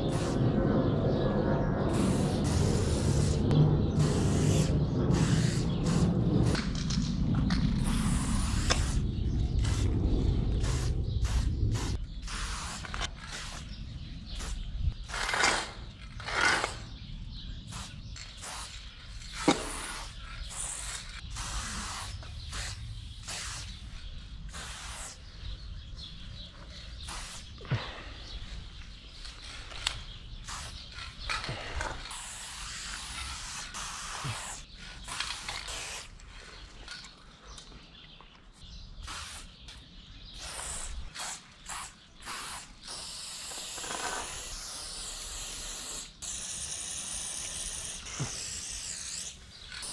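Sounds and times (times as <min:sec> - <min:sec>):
spray paint can hissing: 0:00.0 - 0:00.5, 0:01.9 - 0:06.8, 0:07.7 - 0:13.7, 0:14.3 - 0:15.8, 0:17.6 - 0:25.3, 0:26.9 - 0:27.6, 0:30.4 - 0:31.3, 0:32.0 - 0:36.2, 0:39.0 - 0:49.9
low rumble: 0:00.0 - 0:12.3.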